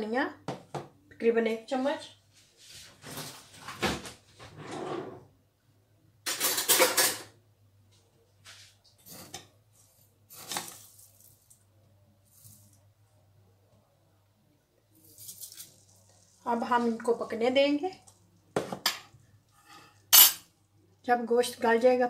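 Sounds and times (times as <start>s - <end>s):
utensils clattering and clinking: 6.3s - 7.3s.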